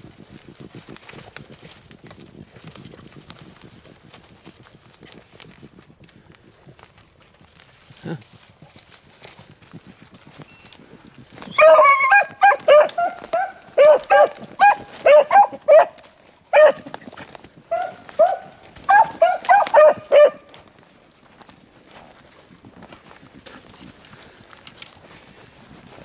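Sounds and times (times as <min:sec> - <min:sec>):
hounds barking: 0:11.4 - 0:16.9, 0:17.7 - 0:20.6.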